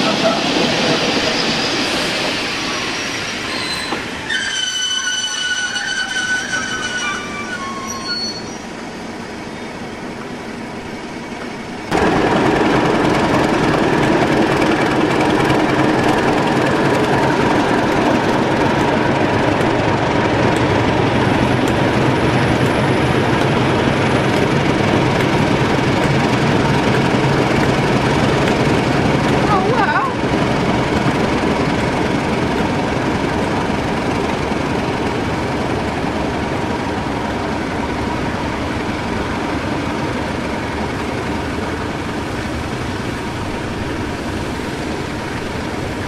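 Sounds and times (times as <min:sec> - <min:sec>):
train wheel squeal: 0:00.0 - 0:09.9
train rumble: 0:00.0 - 0:46.0
diesel locomotive engine running: 0:11.8 - 0:46.0.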